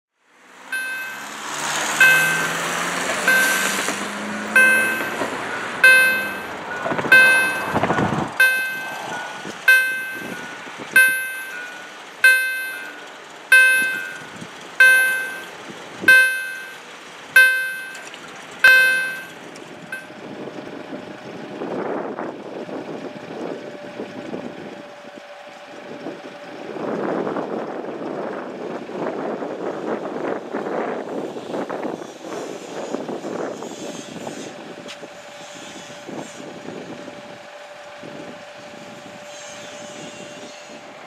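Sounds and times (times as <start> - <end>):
truck engine: 0.2 - 41.0
level crossing warning bell: 0.7 - 20.2.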